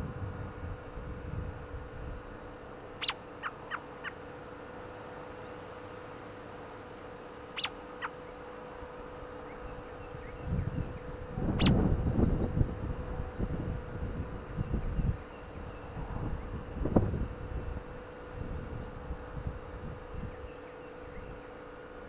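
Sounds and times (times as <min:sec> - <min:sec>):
wind rumble on microphone: 0:00.0 - 0:02.4, 0:09.5 - 0:21.5
bird chirping: 0:03.0 - 0:04.2, 0:07.5 - 0:08.4, 0:09.4 - 0:11.8.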